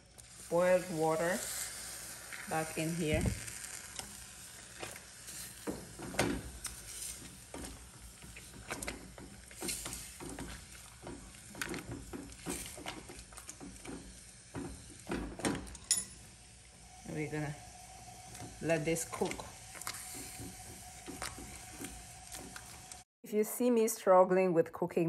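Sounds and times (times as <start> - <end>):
wooden stick scraping a steel pot: 17.0 - 23.0.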